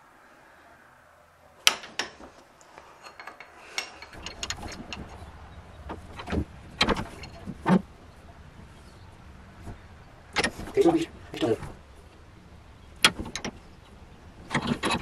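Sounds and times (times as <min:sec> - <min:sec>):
vise handle clinking: 0:03.0 - 0:05.3.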